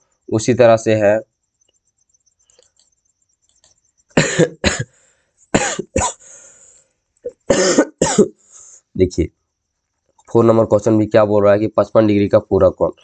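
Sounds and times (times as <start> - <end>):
man coughing hard: 4.2 - 6.4, 7.3 - 8.4.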